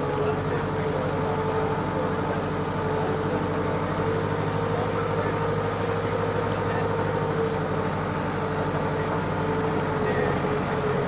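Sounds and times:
tractor engine droning: 0.0s - 11.0s.

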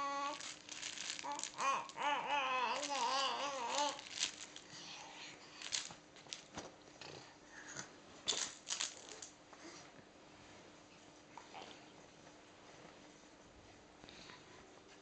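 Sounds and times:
baby babbling: 0.0s - 0.5s, 1.2s - 4.1s
soft toy rustling and tapping: 2.8s - 4.7s.

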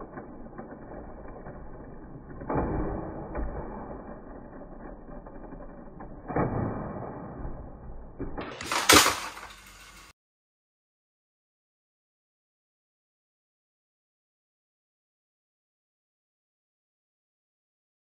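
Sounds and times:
sharp plastic clatter: 8.3s - 10.1s
toy motors and gears whirring: 8.5s - 10.1s.

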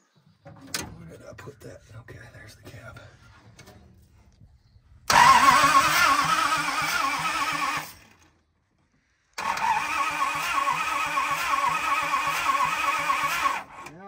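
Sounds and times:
engine cranking without firing: 5.0s - 14.0s.

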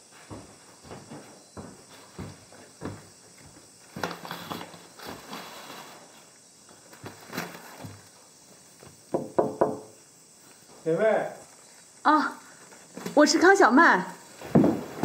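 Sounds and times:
footsteps: 0.0s - 9.0s, 14.2s - 15.0s
taps and thumps: 8.8s - 9.9s, 14.4s - 15.0s.

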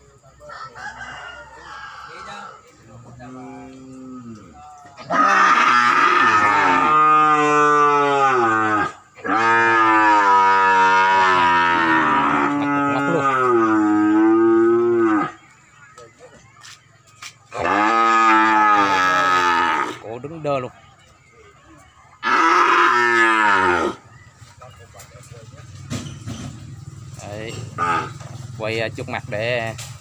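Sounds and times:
cattle mooing: 3.2s - 15.4s, 17.5s - 20.0s, 22.2s - 24.0s, 27.5s - 28.3s.

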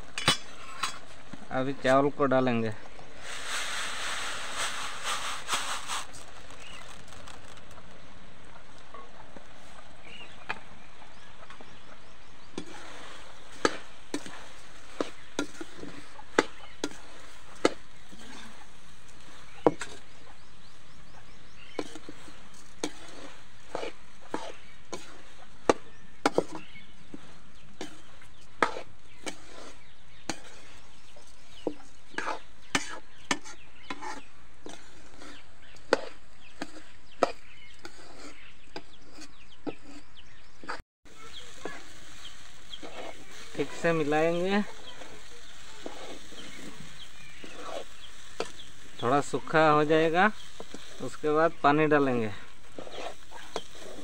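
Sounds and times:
rice pouring into pan: 3.1s - 7.8s, 41.1s - 54.0s
ladle scraping metal pan: 12.6s - 20.2s, 21.6s - 30.9s, 31.5s - 51.2s, 52.1s - 54.0s.

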